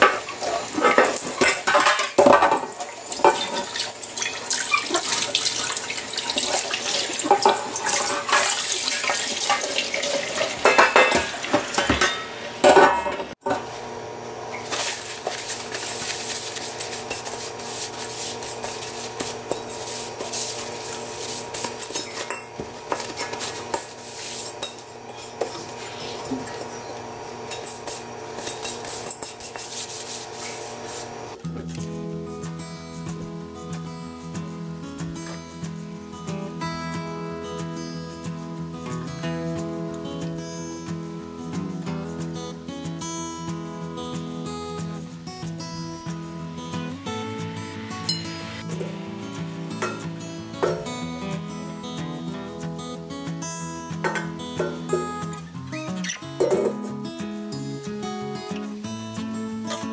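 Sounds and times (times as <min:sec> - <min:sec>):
water splashing in sink: 0:00.0 - 0:13.3
cloth rubbing wok: 0:00.0 - 0:32.0, 0:43.4 - 0:52.6.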